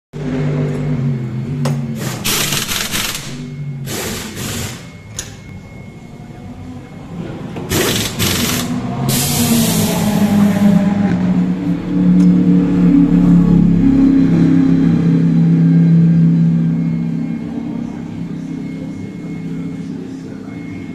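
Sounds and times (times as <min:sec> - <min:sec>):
race car engine idling: 0:00.2 - 0:20.9
pneumatic equipment hissing and whirring: 0:02.0 - 0:04.9, 0:07.7 - 0:09.8.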